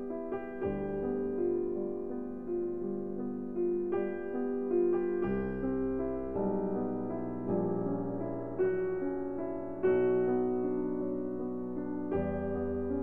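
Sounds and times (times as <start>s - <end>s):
calm piano music: 0.0s - 13.0s.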